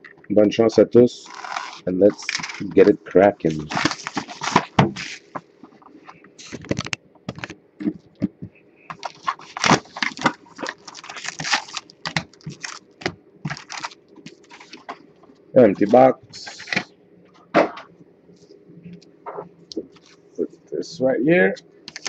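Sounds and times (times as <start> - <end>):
plastic wrap crinkling and tearing: 1.2 - 5.4, 6.4 - 7.5, 8.9 - 14.9
cardboard box and foil packs rustling: 1.3 - 5.4, 8.9 - 15.0.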